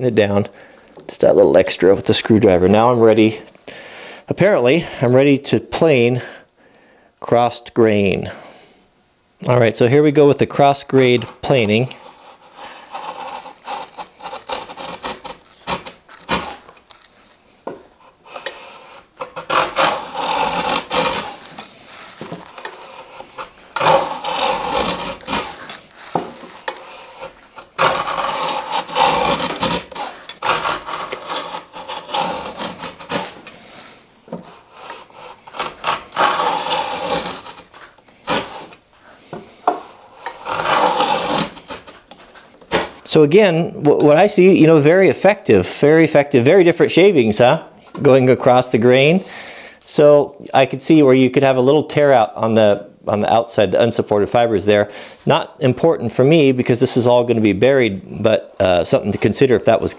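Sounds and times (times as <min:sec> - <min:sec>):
hand plane rasping strokes: 0:10.9 - 0:43.1.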